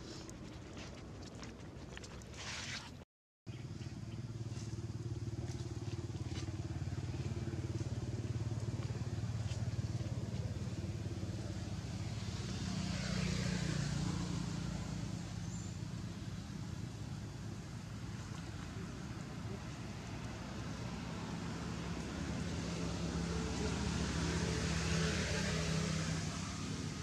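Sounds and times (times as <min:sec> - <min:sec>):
engine humming: 0:03.5 - 0:27.0.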